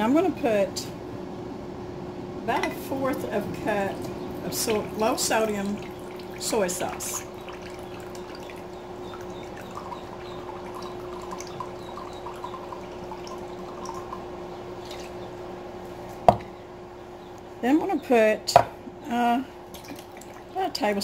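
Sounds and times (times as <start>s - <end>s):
low steady hum: 0.0s - 21.0s
liquid trickling and dripping: 3.0s - 15.5s, 19.6s - 21.0s.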